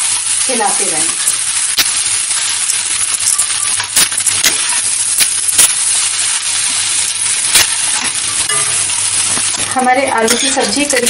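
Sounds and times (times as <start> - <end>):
potatoes and onions sizzling: 0.0 - 11.0
metal spatula scraping pan: 7.6 - 11.0
spatula clinking against pan: 10.0 - 11.0.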